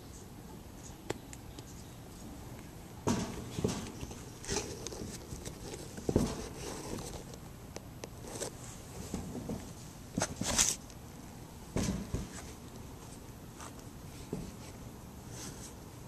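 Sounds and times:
shoe scraping on metal mesh: 3.1 - 7.2, 8.2 - 10.8.

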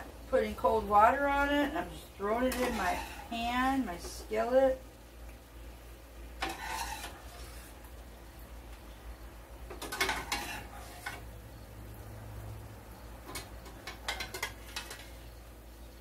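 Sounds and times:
spoon scraping steel pot: 2.4 - 3.4, 6.4 - 7.7, 9.8 - 11.2.

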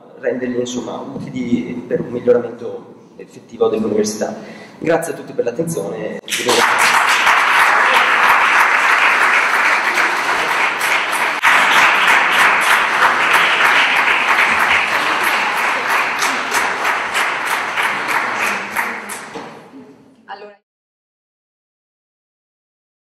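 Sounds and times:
audience applauding: 6.3 - 19.4.

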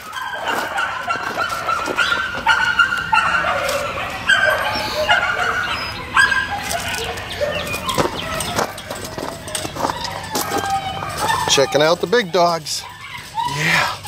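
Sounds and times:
dogs whining and yipping: 0.0 - 14.0.

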